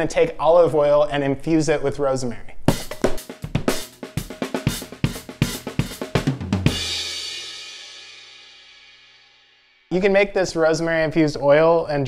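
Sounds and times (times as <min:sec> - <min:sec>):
snare and drum hits: 0:02.7 - 0:07.2
bass drum ringing: 0:02.7 - 0:08.5
cymbal crash: 0:02.7 - 0:09.9.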